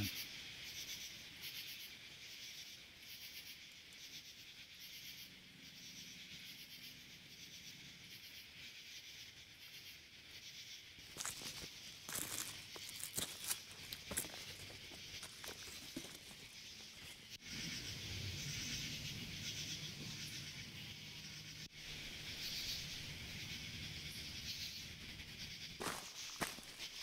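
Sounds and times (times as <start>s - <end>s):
insects shrilling in pulses: 0.0s - 27.0s
footsteps crunching on trail: 11.0s - 17.3s, 25.8s - 27.0s.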